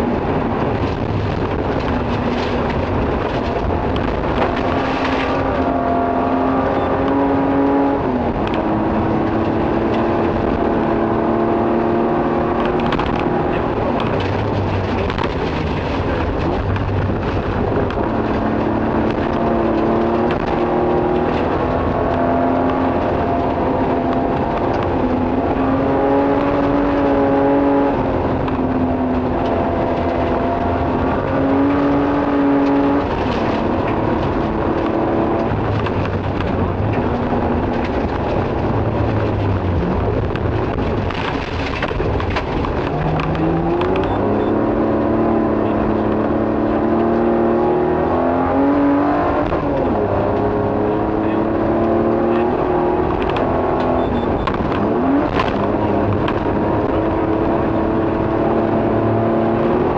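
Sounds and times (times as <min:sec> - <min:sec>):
rally car engine running hard: 0:00.0 - 0:59.9.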